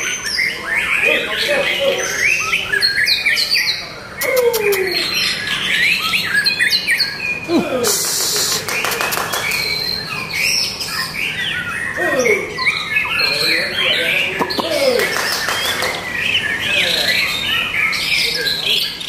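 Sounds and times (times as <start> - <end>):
bird singing whistles and trills: 0.0 - 19.0
bird harsh rasp and clicks: 7.9 - 9.8.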